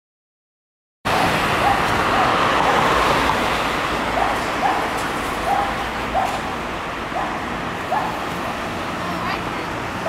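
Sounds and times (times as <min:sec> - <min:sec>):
dog barking: 0:01.6 - 0:02.4, 0:04.2 - 0:06.5, 0:07.1 - 0:08.2.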